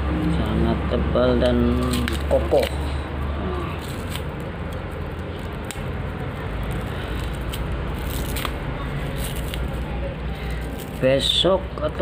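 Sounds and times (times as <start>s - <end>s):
steady low hum: 0.0s - 12.0s
plastic bag rustling: 3.6s - 11.4s.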